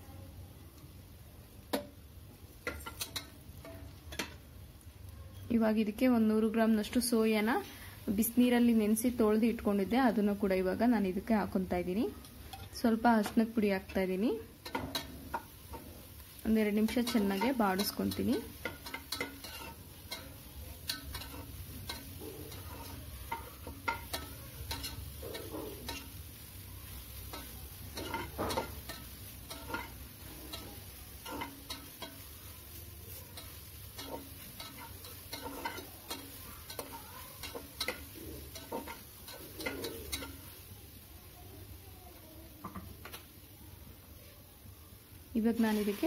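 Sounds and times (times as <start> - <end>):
light sizzle: 0.0 - 46.0
spatula scraping a metal pot: 16.8 - 26.2, 27.2 - 32.4, 33.3 - 40.5.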